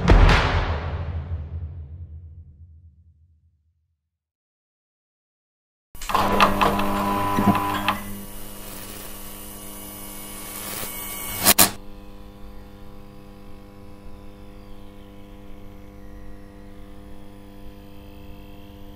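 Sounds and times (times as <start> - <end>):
loud electrical buzz with crackling: 6.0 - 18.9
sharp double electrical crack: 10.4 - 11.8.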